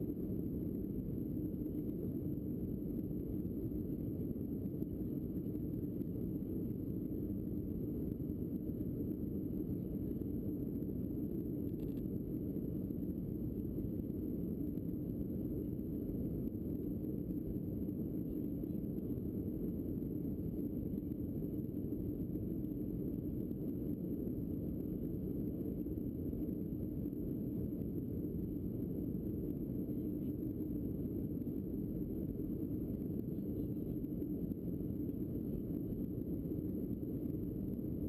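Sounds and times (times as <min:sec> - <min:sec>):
airliner cabin engine rumble: 0:25.4 - 0:38.0.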